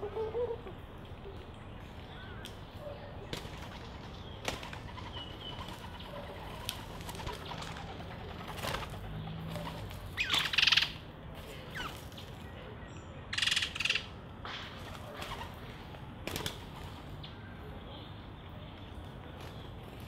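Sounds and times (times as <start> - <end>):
bird wings flapping: 3.3 - 10.6, 14.5 - 17.1.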